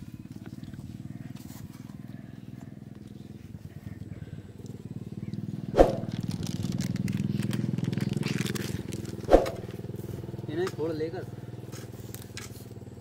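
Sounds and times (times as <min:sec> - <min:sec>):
small engine putter: 0:00.0 - 0:13.0.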